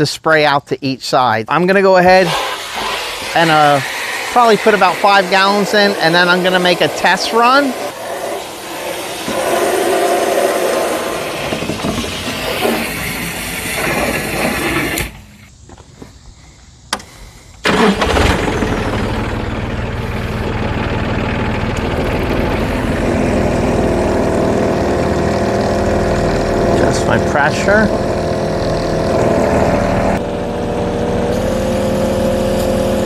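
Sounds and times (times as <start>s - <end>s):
hose water running into tank: 2.0s - 15.2s, 24.6s - 30.2s
tractor diesel engine running: 17.6s - 33.0s.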